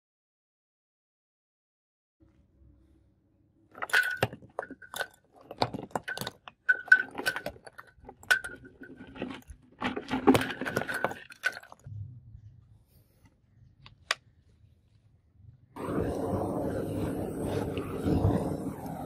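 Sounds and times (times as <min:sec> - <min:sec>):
charcoal clattering onto bricks: 0:03.8 - 0:11.9.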